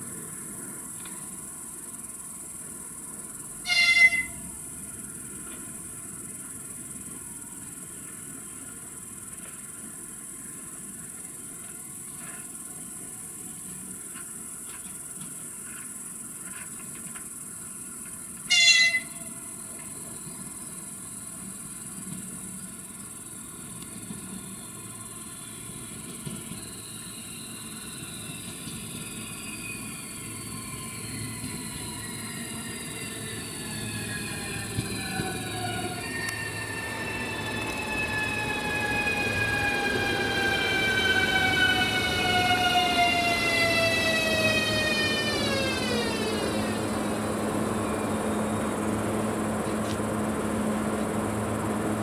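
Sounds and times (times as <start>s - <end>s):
insects chirring: 0.0s - 52.0s
train whine: 0.0s - 52.0s
electric train horn blasts: 3.6s - 4.6s, 18.4s - 19.5s.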